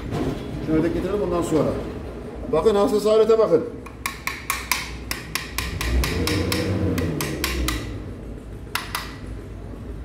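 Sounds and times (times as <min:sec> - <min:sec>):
ratchet wrench clicking: 0:03.8 - 0:08.0.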